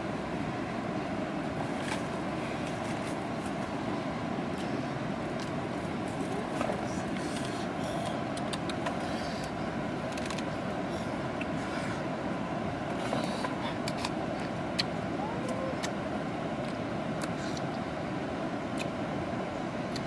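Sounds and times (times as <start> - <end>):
low rumbling background noise: 0.0 - 20.0.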